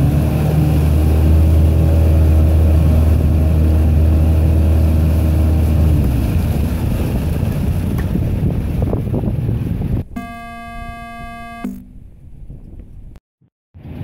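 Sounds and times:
outboard motor running: 0.0s - 8.5s, 10.0s - 12.3s
churning water: 0.0s - 12.3s
wind: 0.0s - 13.2s, 13.8s - 14.0s.

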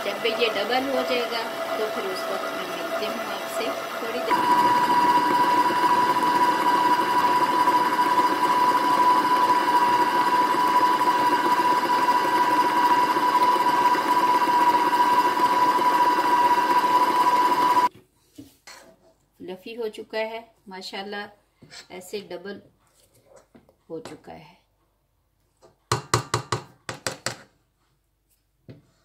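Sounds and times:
stand mixer motor whining: 0.0s - 17.9s.

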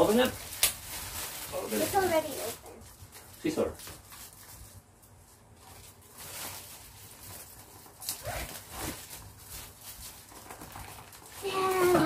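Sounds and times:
plastic wrapping crinkling: 0.0s - 12.0s.

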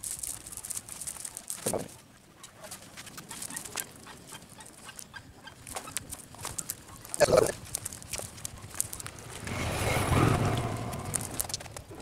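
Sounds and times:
fish flapping and slapping: 5.7s - 12.0s.

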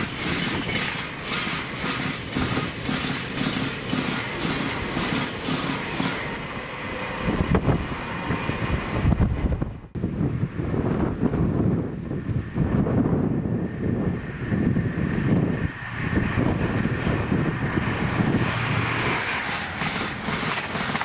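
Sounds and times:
train wheels clattering over rails: 0.0s - 6.3s, 17.1s - 21.0s
train rumble: 0.0s - 21.0s.

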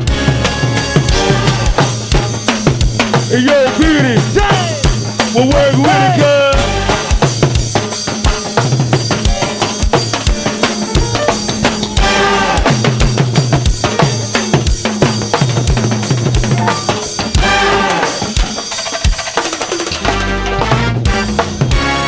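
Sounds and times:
bass line: 0.0s - 7.6s, 9.1s - 14.4s, 16.4s - 18.2s, 20.0s - 22.0s
drum kit beat: 0.0s - 22.0s
melodic line: 9.3s - 13.2s.

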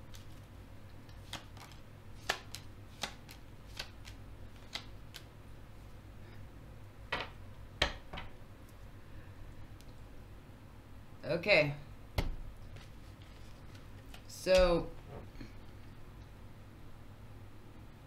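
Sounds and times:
cards shuffling and clicking: 0.0s - 5.3s, 12.7s - 14.8s.

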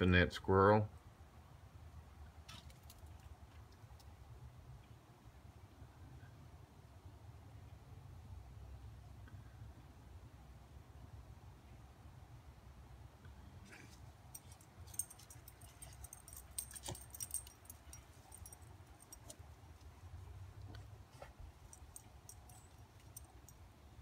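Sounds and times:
dog collar tags jingling: 14.3s - 20.0s, 20.6s - 23.7s.

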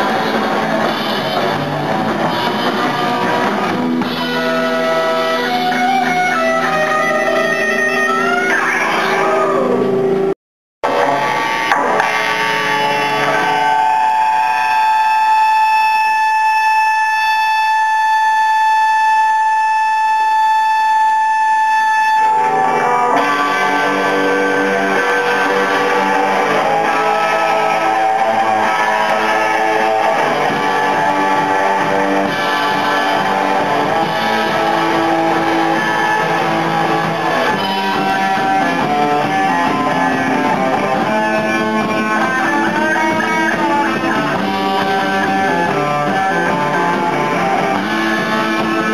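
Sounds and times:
electric guitar tone held: 0.0s - 48.9s
rock band playing: 0.0s - 48.9s.

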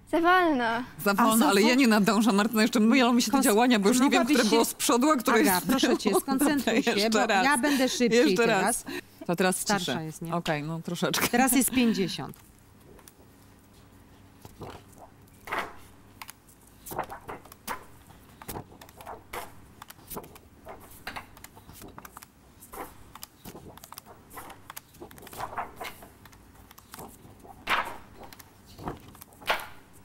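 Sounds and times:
cardboard cards flapping: 12.3s - 30.0s.

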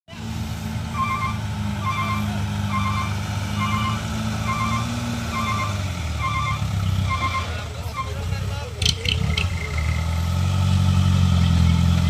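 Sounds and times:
truck back-up alarm beeping: 0.9s - 8.3s.

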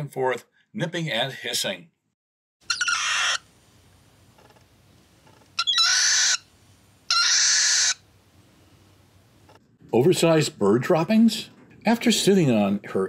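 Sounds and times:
cockatiel hissing: 2.7s - 3.4s, 5.6s - 6.5s, 7.1s - 8.0s.

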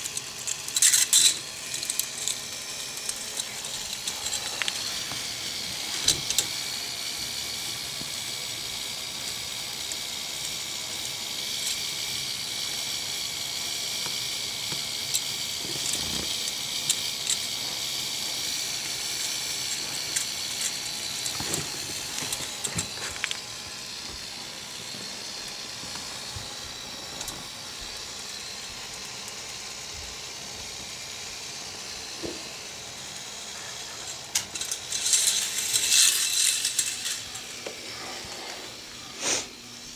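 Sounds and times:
toy motor whirring: 0.0s - 39.9s.

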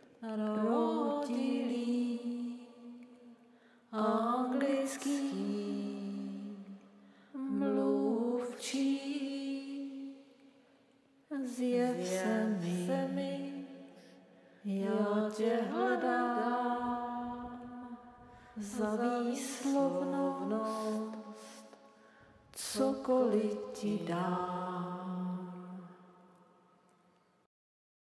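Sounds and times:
woman singing unaccompanied: 0.0s - 3.0s, 3.9s - 6.6s, 7.4s - 10.0s, 11.3s - 13.8s, 14.7s - 17.9s, 18.6s - 21.4s, 22.6s - 25.8s.

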